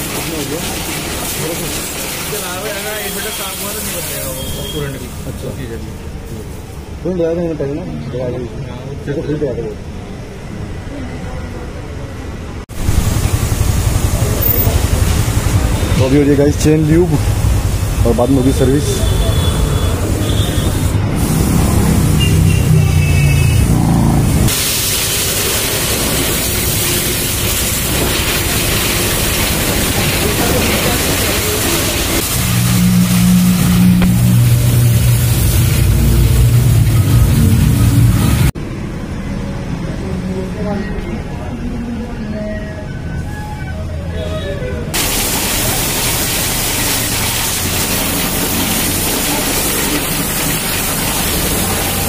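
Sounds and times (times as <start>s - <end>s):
pressure washer jet hissing: 0.0s - 5.2s, 12.8s - 22.6s, 24.5s - 38.5s, 45.0s - 52.0s.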